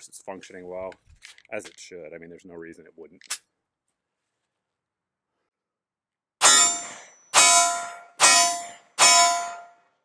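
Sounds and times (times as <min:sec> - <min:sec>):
pistol shots with ringing tail: 0:06.4 - 0:09.8.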